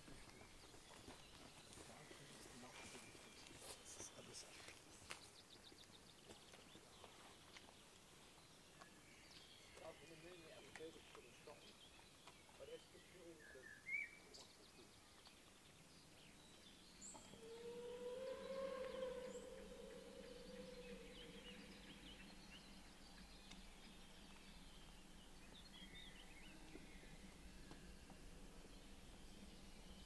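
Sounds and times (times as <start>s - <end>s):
small birds chirping: 0.0s - 17.6s
distant steam whistle: 17.4s - 21.6s.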